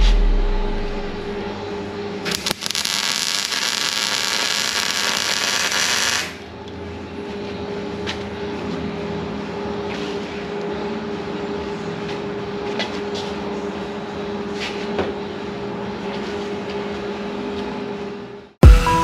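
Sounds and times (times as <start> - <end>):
steady hum: 0.0 - 14.6
welder arc crackling: 2.3 - 6.4.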